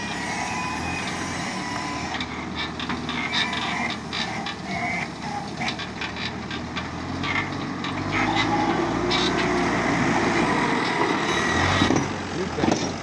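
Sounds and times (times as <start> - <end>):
diesel engine running: 0.0 - 13.0
machine clanks and knocks: 11.8 - 13.0.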